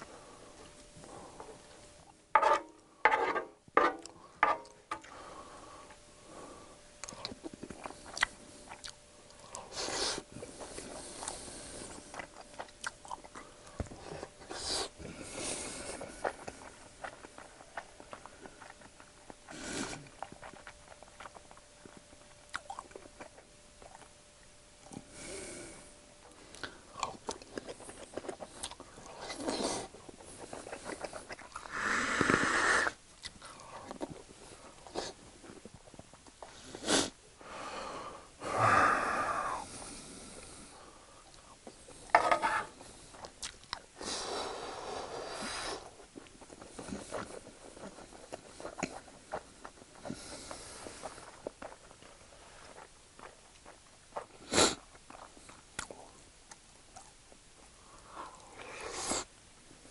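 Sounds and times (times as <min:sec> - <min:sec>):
man chewing food: 0:00.0 - 0:37.6, 0:38.6 - 0:59.9
breathy puffs of breath: 0:36.5 - 0:41.2, 0:44.0 - 0:46.0.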